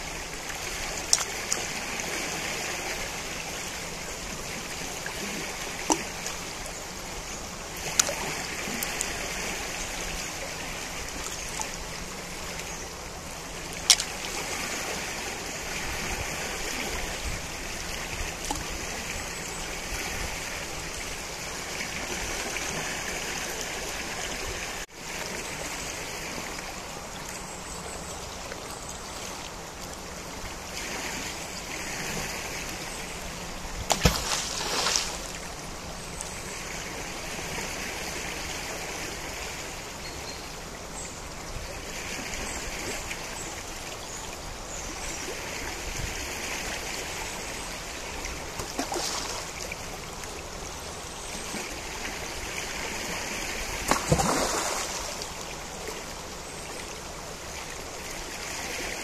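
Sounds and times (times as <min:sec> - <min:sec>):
river water rushing: 0:00.0 - 0:59.0
sharp water splashes: 0:07.8 - 0:09.2, 0:13.8 - 0:14.7, 0:33.9 - 0:35.4, 0:48.6 - 0:49.7, 0:53.8 - 0:55.3.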